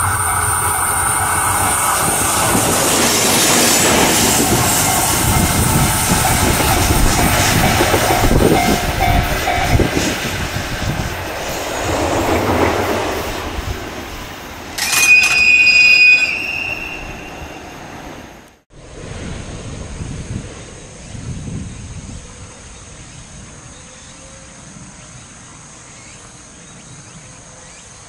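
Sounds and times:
train wheels clattering over rails: 0.0 - 15.8.

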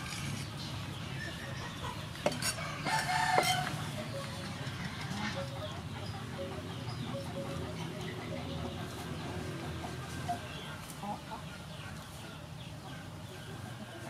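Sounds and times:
low background noise: 0.0 - 14.0
rooster crowing: 2.5 - 4.0.

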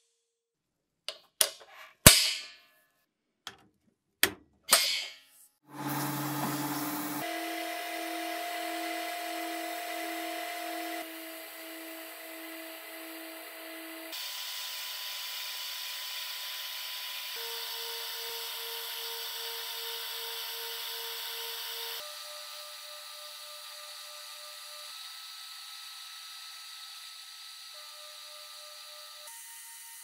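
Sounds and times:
sandblasting gun hissing: 5.7 - 18.4.

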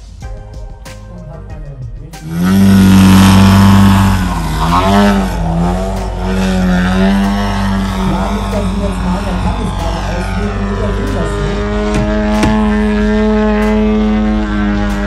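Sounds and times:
model airplane engine droning: 2.2 - 15.0.

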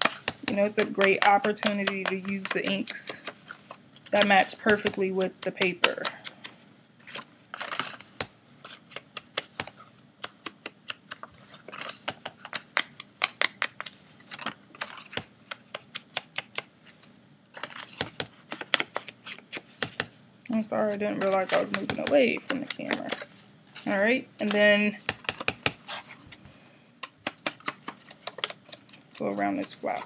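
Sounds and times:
ink pad tapping on paper: 0.2 - 2.9.

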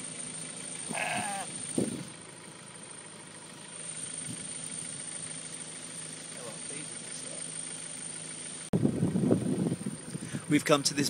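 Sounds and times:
car engine idling: 0.0 - 11.0
sheep bleating: 0.8 - 1.6.

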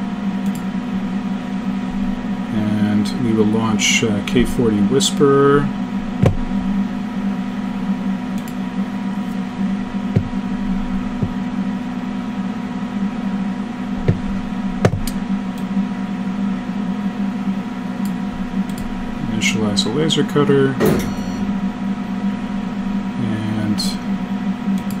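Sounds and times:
laser cutter fans humming: 0.0 - 25.0
sharp clicks: 0.4 - 0.7, 8.4 - 8.6, 18.0 - 18.9.

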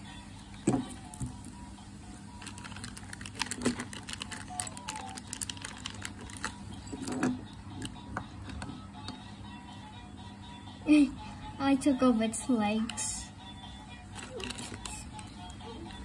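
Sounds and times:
plastic bricks clicking and rattling: 2.4 - 7.3.

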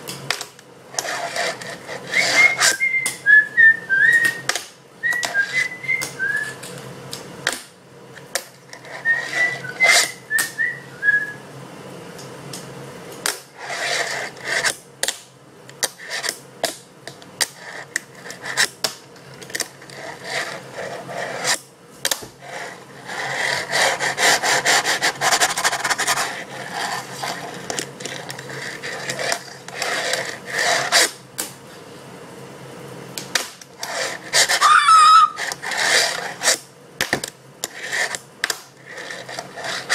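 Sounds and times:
wheels rolling rasp: 0.9 - 3.8, 8.7 - 10.3, 13.5 - 14.7, 17.4 - 21.6, 22.4 - 31.2, 33.8 - 36.6, 37.6 - 39.9
person whistling: 2.2 - 6.6, 9.0 - 11.4, 34.6 - 35.4.

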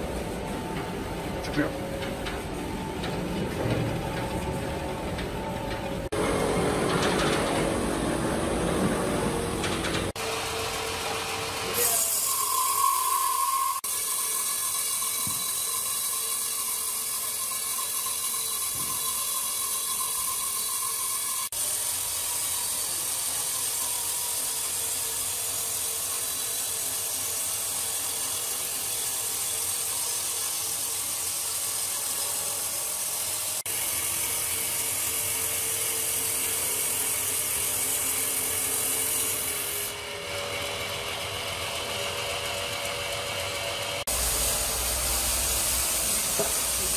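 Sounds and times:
band saw cutting log: 10.1 - 46.9
high saw whine: 10.1 - 46.9.

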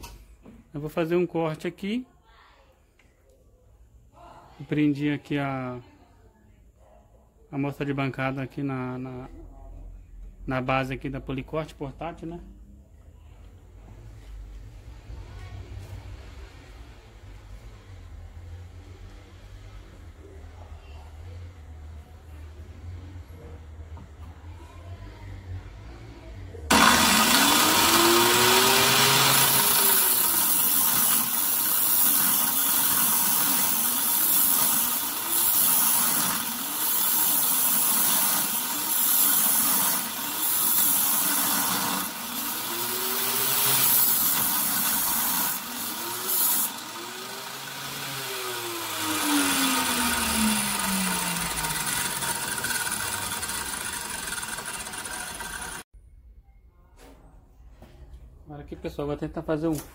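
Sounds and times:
angle grinder cutting metal: 26.7 - 55.8.

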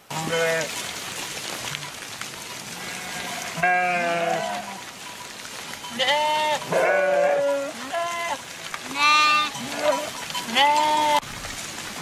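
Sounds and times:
sheep bleating: 0.1 - 0.7, 2.7 - 4.8, 5.9 - 11.2.

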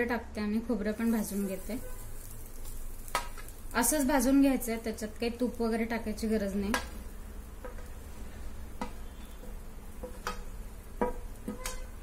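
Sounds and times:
spatula tapping on metal pan: 6.6 - 7.0, 7.6 - 8.0, 8.7 - 11.9.

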